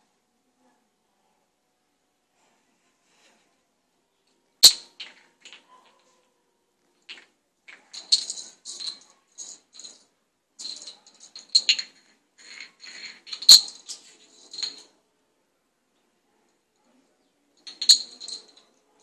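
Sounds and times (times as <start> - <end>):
plastic cap rattling on tile floor: 4.6 - 6.0, 7.0 - 14.9, 17.6 - 18.7.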